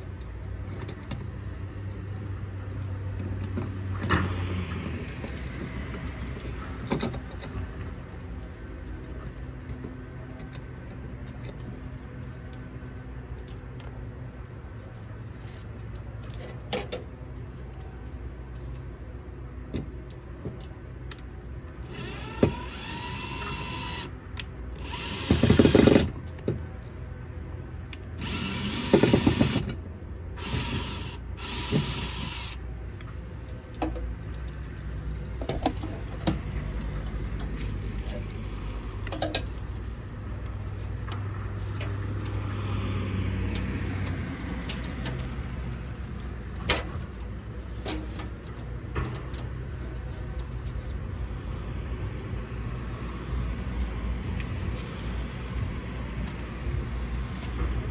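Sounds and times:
cordless drill bursts: 21.9s - 24.1s, 24.8s - 26.1s, 28.2s - 29.6s, 30.4s - 32.6s.

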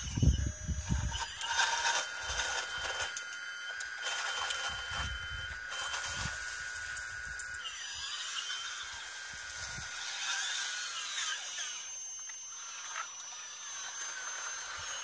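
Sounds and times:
higher whine tone: 0.0s - 10.0s
hydraulic pump whining: 0.0s - 15.0s.

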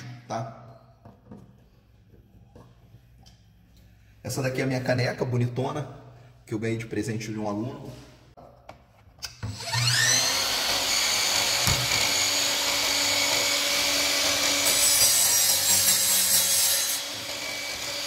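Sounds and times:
miter saw motor whining: 9.5s - 14.6s
saw blade cutting wood: 9.5s - 18.0s.

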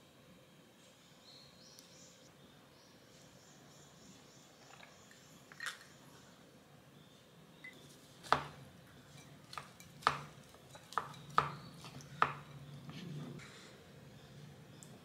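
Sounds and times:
wooden spoon knocking ceramic bowl: 9.2s - 12.5s.

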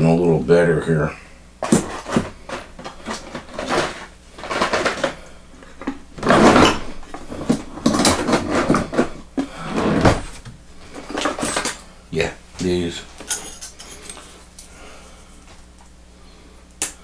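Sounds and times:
tools knocking and clattering: 1.6s - 10.4s, 11.0s - 11.8s.

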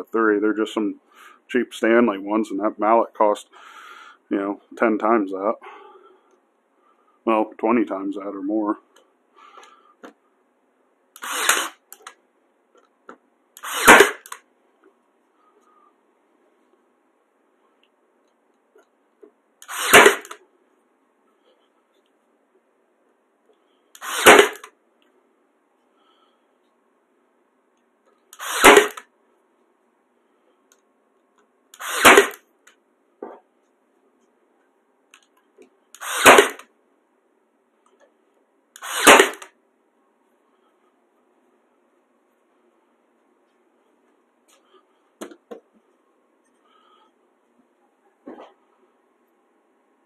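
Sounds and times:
nail gun firing: 11.2s - 12.1s, 13.6s - 14.4s, 19.6s - 20.4s, 24.0s - 24.7s, 28.4s - 29.0s, 31.8s - 32.4s, 36.0s - 36.7s, 38.8s - 39.5s.

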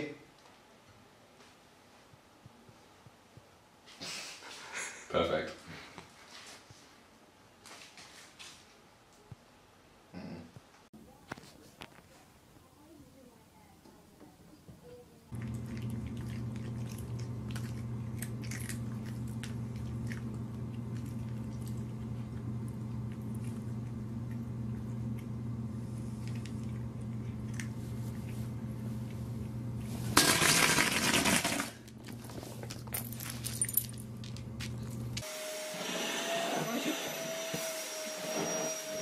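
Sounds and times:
cat crunching kibble: 15.3s - 25.3s, 26.2s - 28.4s
low hum: 15.3s - 30.4s.

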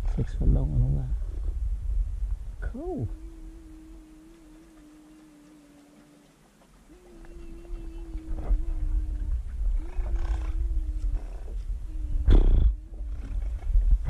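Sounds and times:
low rumble: 0.0s - 6.0s, 6.8s - 14.0s
people imitating otter calls: 3.0s - 12.8s.

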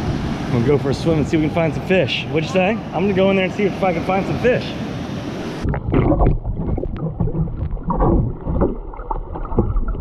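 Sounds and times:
wind and surf hiss: 0.0s - 5.8s
muffled underwater surf sloshing: 0.0s - 10.0s.

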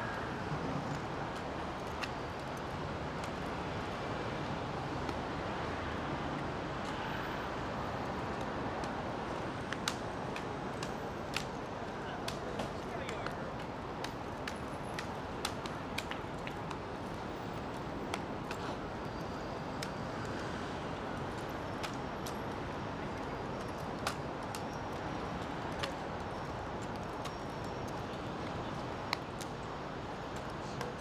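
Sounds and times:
outdoor crowd murmur: 6.8s - 16.2s, 29.8s - 31.0s.

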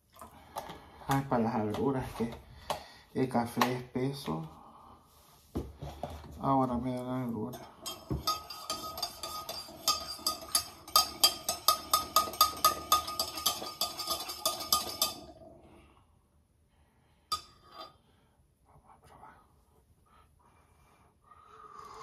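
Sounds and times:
metal spoon clinking in cup: 7.5s - 15.4s.

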